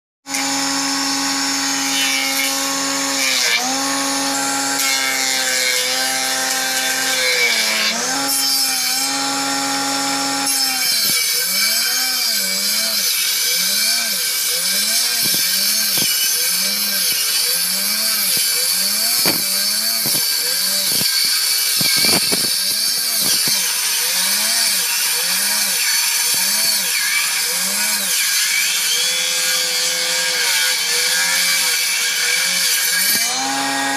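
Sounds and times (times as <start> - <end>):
electric planer cutting wood: 0.2 - 33.9.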